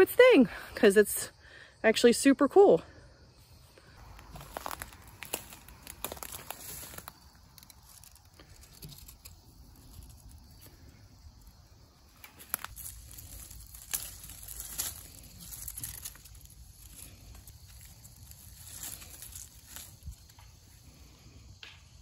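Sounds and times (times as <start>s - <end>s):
dry brush crackling and rustling: 4.0s - 21.0s.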